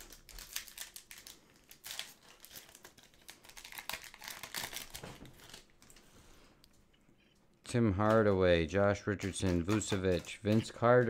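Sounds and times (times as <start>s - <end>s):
foil wrapper tearing and crinkling: 0.0s - 6.0s, 9.2s - 11.0s.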